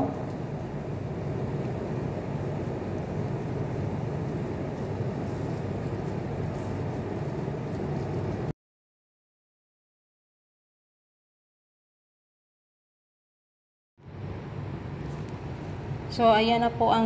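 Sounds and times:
air conditioner humming: 0.0 - 8.5, 14.0 - 17.0.

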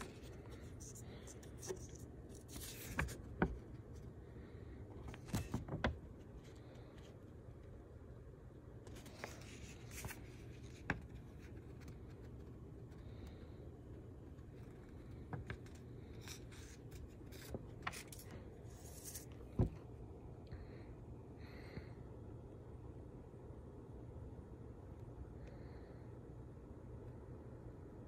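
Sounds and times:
banknote rustling: 0.0 - 4.1, 15.1 - 19.4.

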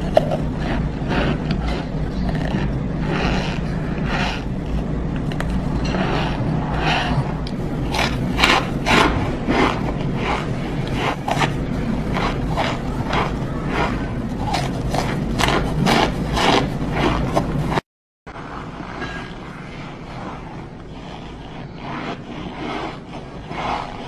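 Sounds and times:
cornstarch crunching while eaten: 0.0 - 17.8.

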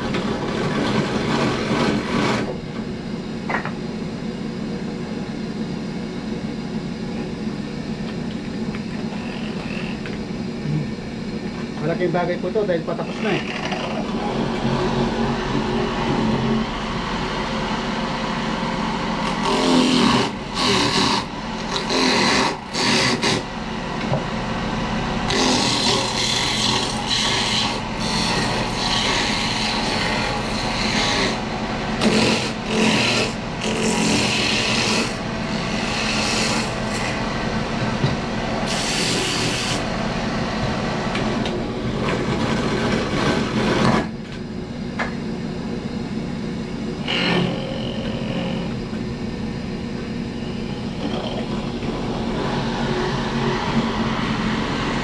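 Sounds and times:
low hum: 13.0 - 22.8
hand tool rasping and scraping: 19.2 - 23.5, 25.3 - 31.4, 32.0 - 37.2.

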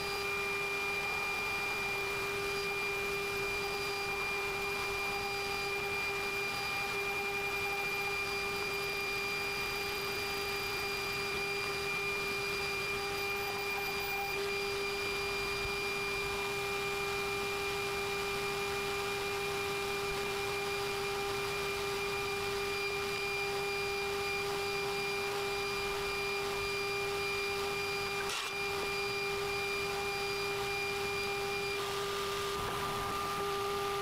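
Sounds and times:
mill spindle whining: 0.0 - 34.0
end mill cutting metal: 27.2 - 30.2.

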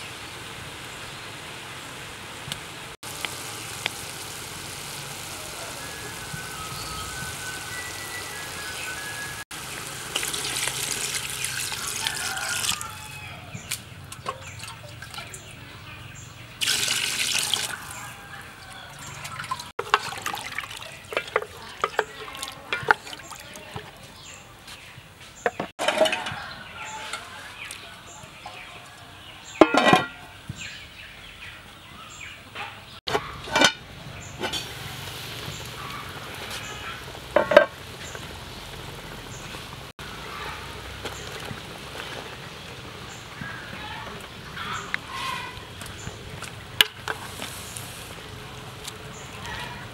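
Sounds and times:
water pouring into metal pot: 3.1 - 12.9, 16.6 - 18.2, 18.9 - 23.9
spatula stirring broth: 19.2 - 24.1.

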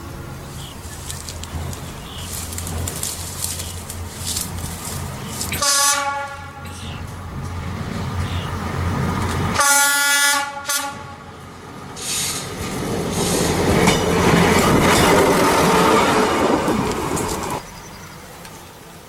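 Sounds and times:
train rumbling across steel bridge: 0.0 - 19.0
train horn: 5.5 - 6.9, 9.5 - 11.3.

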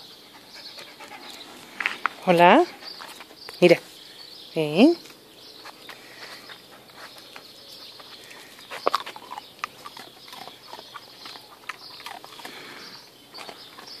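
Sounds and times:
dog paws clicking and scuffing: 0.9 - 4.0, 5.0 - 12.7.

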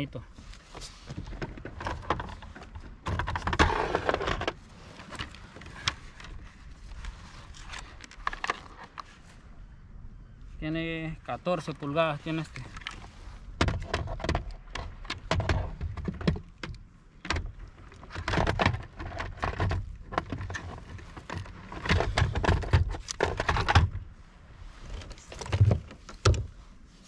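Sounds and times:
clattering and knocking on a kayak: 0.3 - 9.1, 12.6 - 24.1, 24.9 - 26.6.

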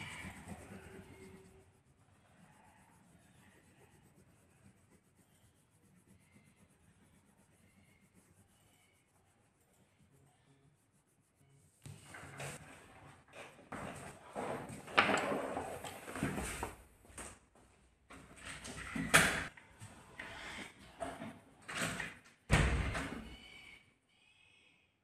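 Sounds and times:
coloured pencil scratching on paper: 0.0 - 12.6.

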